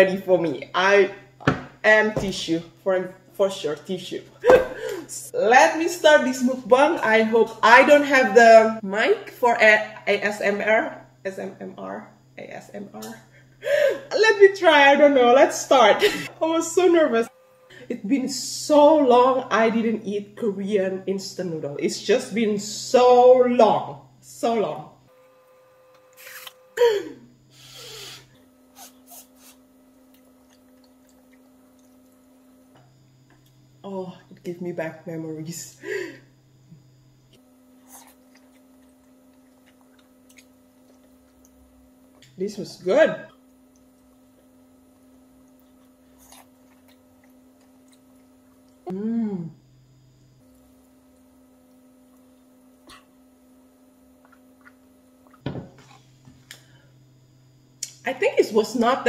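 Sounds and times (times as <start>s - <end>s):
faint steady hum: 0.0s - 59.0s
soft eating sounds: 28.2s - 33.8s, 37.4s - 42.4s, 43.3s - 49.0s, 54.1s - 56.6s.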